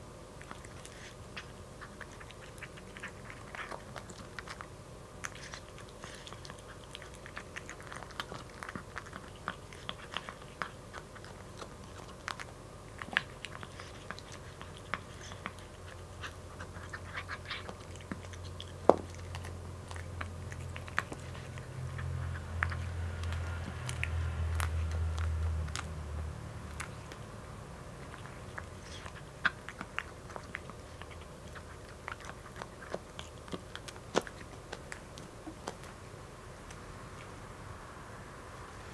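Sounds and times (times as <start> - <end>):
kitten crunching dry kibble: 0.2 - 37.4
low hum: 19.4 - 38.9.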